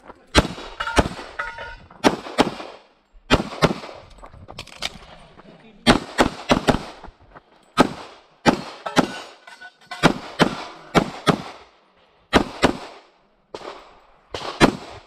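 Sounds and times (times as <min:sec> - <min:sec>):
pistol shots with echo: 0:00.3 - 0:04.0, 0:05.8 - 0:07.0, 0:07.8 - 0:09.4, 0:10.0 - 0:11.7, 0:12.3 - 0:15.0.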